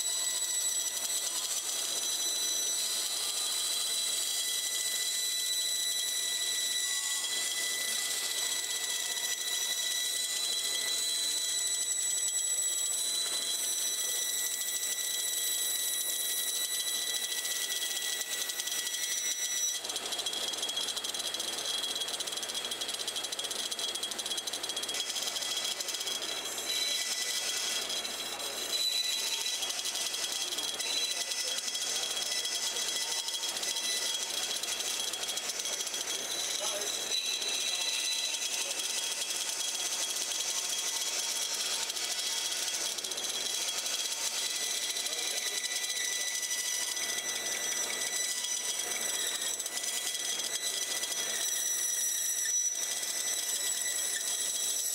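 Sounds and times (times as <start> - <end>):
bandsaw cutting wood: 0.0 - 54.9.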